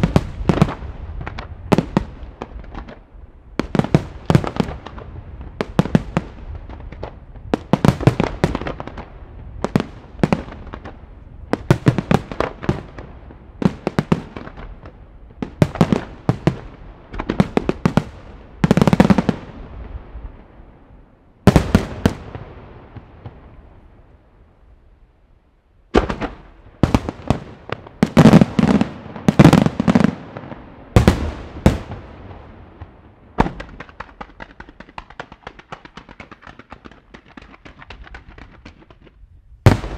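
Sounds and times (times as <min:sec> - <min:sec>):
fireworks launching and bursting: 0:00.0 - 0:20.4, 0:21.4 - 0:23.6, 0:25.9 - 0:39.9.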